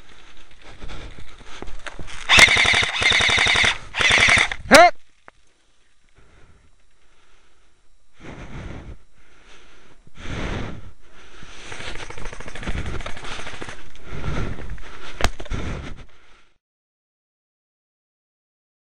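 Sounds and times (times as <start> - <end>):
airsoft guns firing bursts: 2.3 - 4.8, 11.6 - 13.9.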